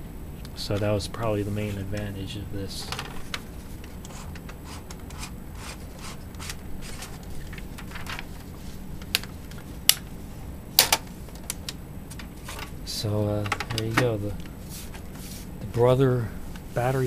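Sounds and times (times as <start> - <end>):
paper rustling from typewriter: 6.4 - 8.7.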